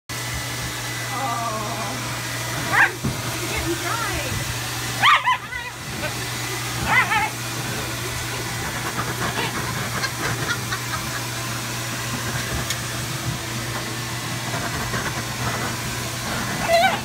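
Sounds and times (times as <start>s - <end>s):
blow dryer running: 0.1s - 17.0s
dog yipping and grumbling: 2.7s - 3.0s, 5.0s - 5.8s, 6.8s - 7.4s, 16.6s - 17.0s.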